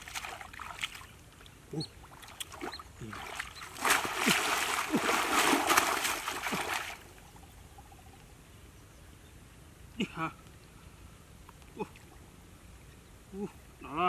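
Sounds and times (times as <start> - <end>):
hands splashing in muddy water: 2.2 - 7.1.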